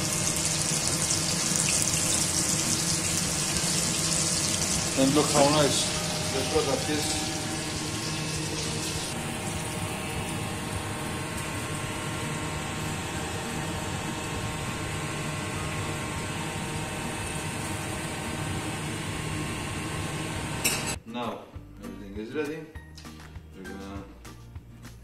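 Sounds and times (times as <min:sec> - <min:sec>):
fish cakes sizzling in oil: 0:00.0 - 0:12.6
steady background hum: 0:00.0 - 0:21.0.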